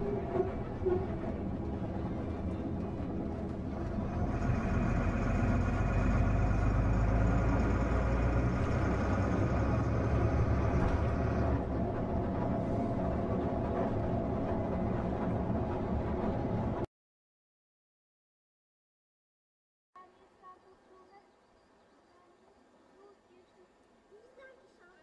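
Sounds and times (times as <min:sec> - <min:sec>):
road noise: 0:00.0 - 0:16.8
coach engine drone: 0:00.0 - 0:16.9.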